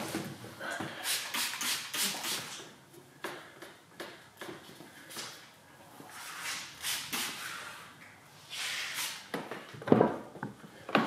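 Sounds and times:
spray bottle hissing bursts: 1.0s - 2.6s.

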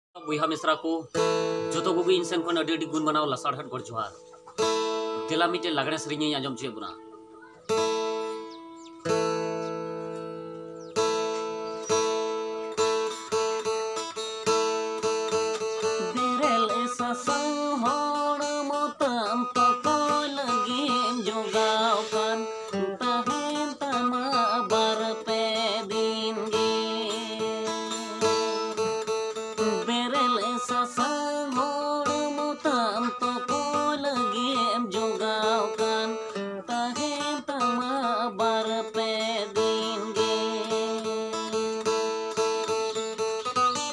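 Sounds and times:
acoustic guitar strumming: 0.2s - 43.9s
man singing: 15.8s - 28.9s, 29.6s - 41.7s.

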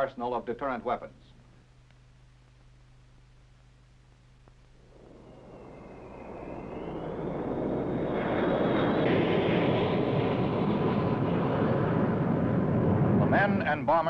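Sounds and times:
high thin engine whine: 4.8s - 13.4s
jet aircraft engines: 4.8s - 14.0s.

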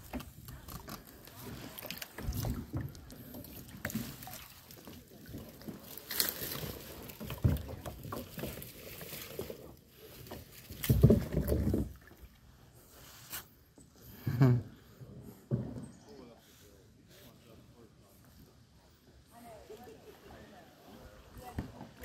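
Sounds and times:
paddle splashing in water: 0.0s - 13.5s
paddle knocking against hull: 6.8s - 9.6s, 10.3s - 12.2s.

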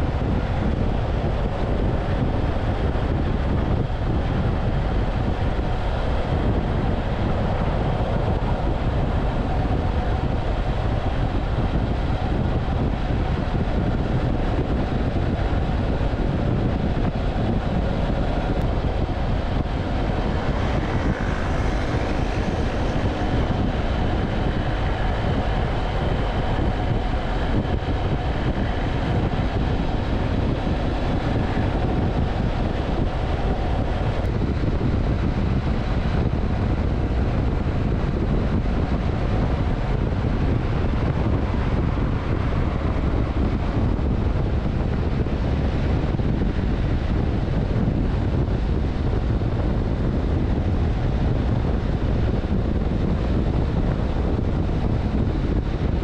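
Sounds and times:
wind rushing over microphone: 0.0s - 56.0s
motorcycle engine cruising: 0.8s - 55.8s.

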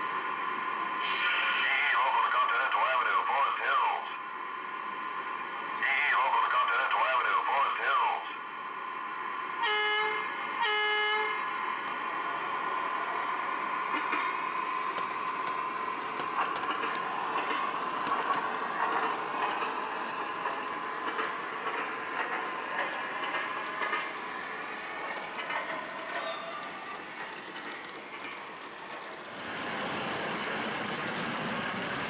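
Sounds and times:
model train motor hum: 9.6s - 32.0s
wheels clicking on track: 13.6s - 32.0s.

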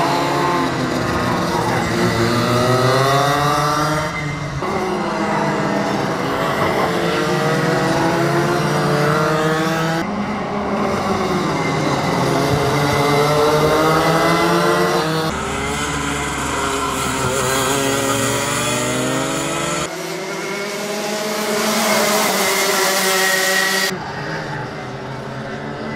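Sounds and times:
kart engines revving: 0.0s - 25.9s.

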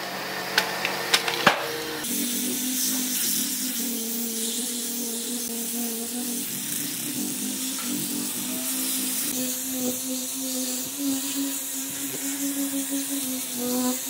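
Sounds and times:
angle grinder sanding wood: 0.0s - 14.0s.

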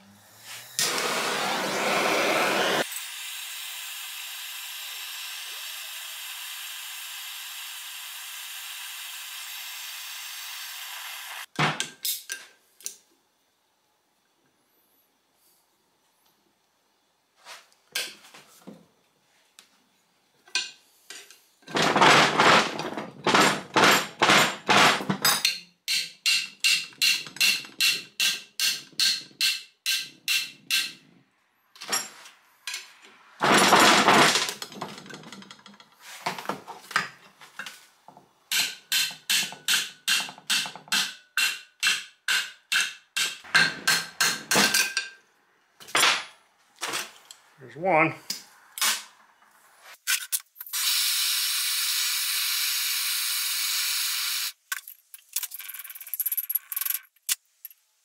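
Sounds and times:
hammer striking metal pliers: 25.3s - 31.0s, 38.5s - 45.1s.

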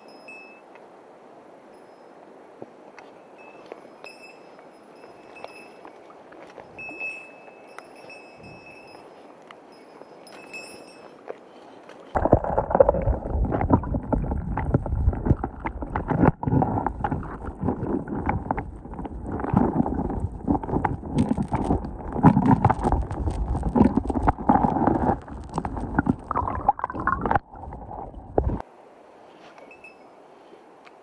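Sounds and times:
underwater stream gurgling: 12.1s - 28.6s.

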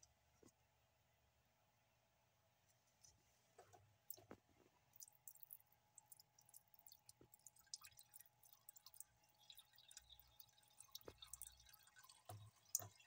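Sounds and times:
drip-like ticks: 4.9s - 13.0s
tap water trickling into sink: 5.0s - 13.0s.

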